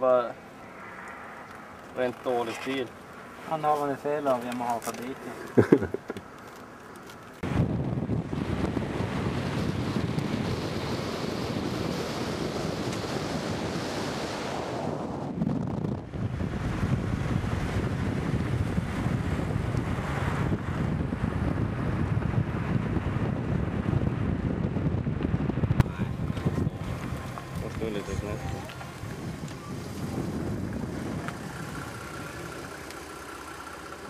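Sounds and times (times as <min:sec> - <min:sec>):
car road noise at highway speed: 0:00.0 - 0:34.0
wind rushing over microphone: 0:07.4 - 0:32.8.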